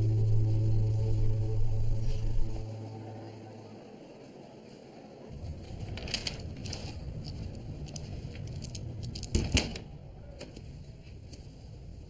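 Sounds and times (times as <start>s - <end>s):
low room rumble: 0.0s - 12.0s
papers rustling: 5.3s - 9.5s.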